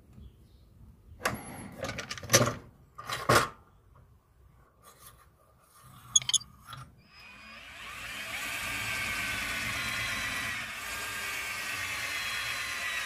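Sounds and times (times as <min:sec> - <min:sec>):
drill bits clinking and rattling: 0:06.2 - 0:06.4.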